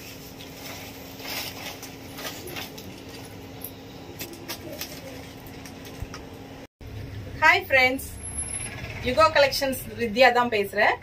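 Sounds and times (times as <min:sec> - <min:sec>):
plastic bags rustling: 0:00.0 - 0:03.6.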